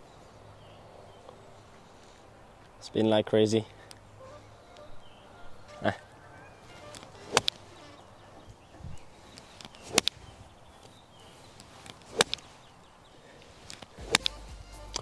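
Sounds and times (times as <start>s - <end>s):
golf club striking ball: 6.9s - 7.8s, 9.8s - 10.2s, 11.9s - 12.5s, 14.0s - 14.4s.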